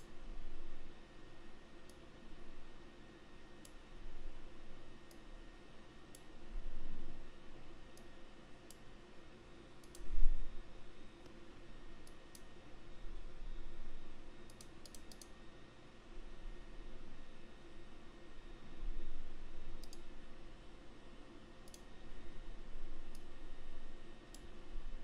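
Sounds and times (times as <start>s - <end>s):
computer mouse clicking: 9.8s - 10.1s, 14.5s - 15.3s, 19.8s - 20.1s, 21.6s - 21.9s.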